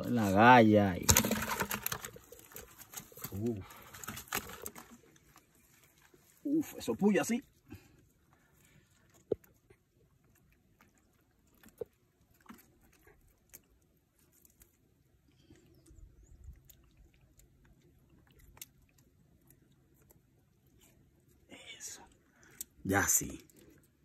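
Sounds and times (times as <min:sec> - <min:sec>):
faint clicks and rustles: 0:01.1 - 0:06.5.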